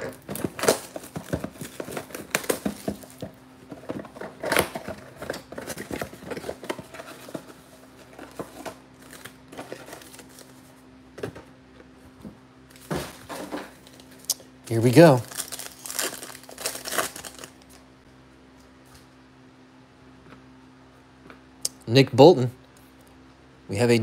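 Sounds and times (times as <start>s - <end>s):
plastic shrink wrap crinkling: 0.0s - 10.7s, 13.8s - 17.8s.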